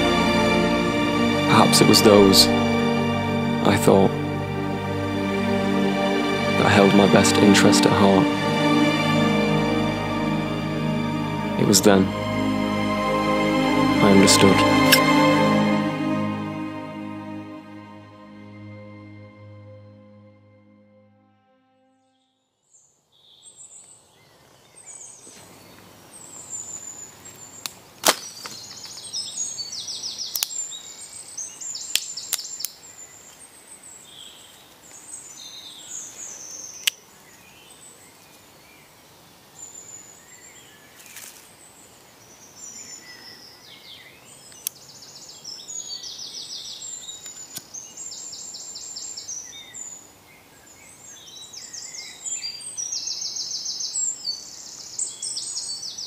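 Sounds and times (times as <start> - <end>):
dry twigs cracking: 28.0 - 29.0.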